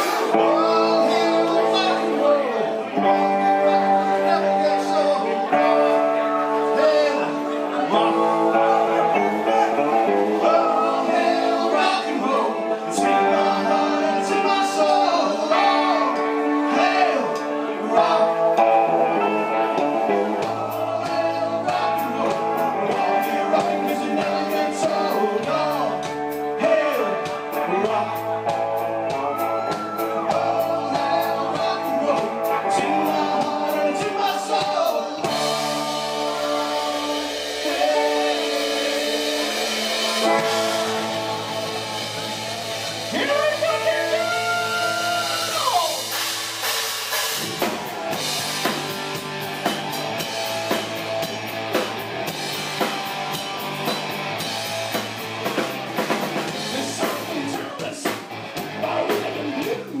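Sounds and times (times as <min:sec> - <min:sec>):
drum kit: 0:00.0 - 0:02.0, 0:13.0 - 1:00.0
man singing: 0:00.0 - 0:46.2, 0:56.5 - 1:00.0
bass guitar: 0:00.0 - 1:00.0
electric guitar: 0:00.0 - 1:00.0.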